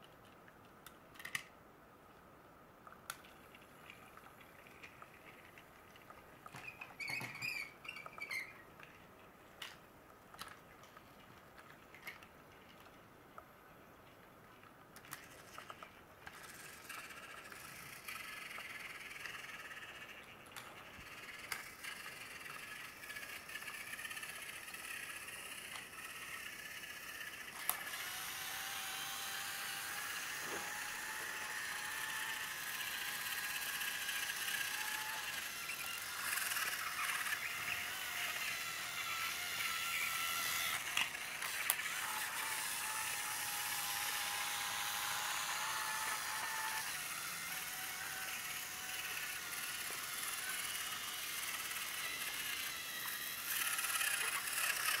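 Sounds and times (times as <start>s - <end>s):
toy train motor whine: 6.5s - 8.6s, 15.6s - 55.0s.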